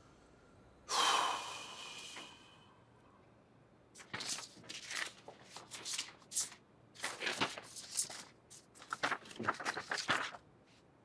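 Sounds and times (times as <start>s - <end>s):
paper rustling and flapping: 4.0s - 10.4s.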